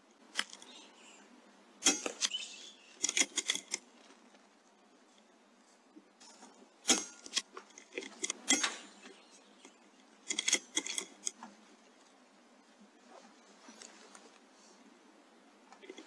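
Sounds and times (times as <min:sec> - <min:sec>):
metallic clicks: 0:03.0 - 0:03.9, 0:06.2 - 0:11.5.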